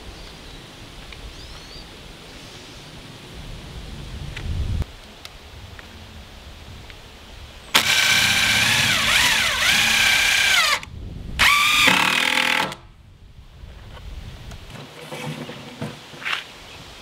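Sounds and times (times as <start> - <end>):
impact driver driving screw: 7.8 - 12.8.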